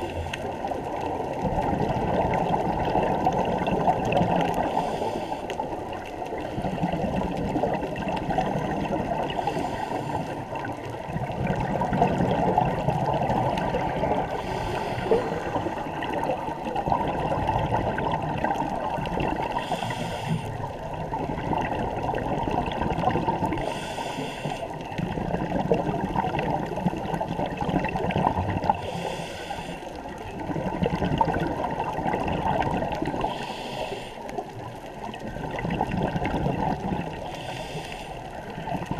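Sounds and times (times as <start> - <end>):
low rush of water: 0.0 - 38.9
underwater bubbling: 0.0 - 38.9.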